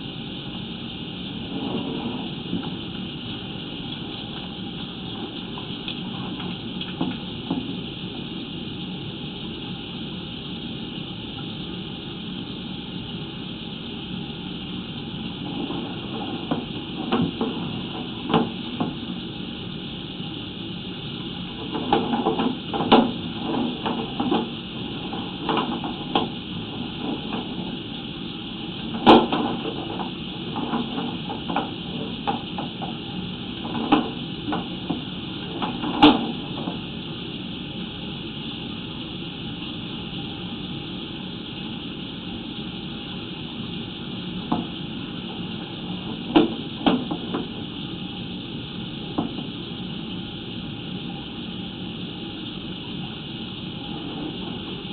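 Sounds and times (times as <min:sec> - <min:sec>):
steady hiss: 0:00.0 - 0:54.9.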